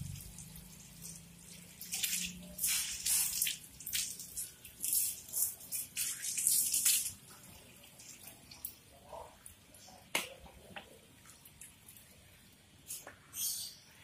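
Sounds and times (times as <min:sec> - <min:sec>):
hose water splashing: 0:00.0 - 0:09.4.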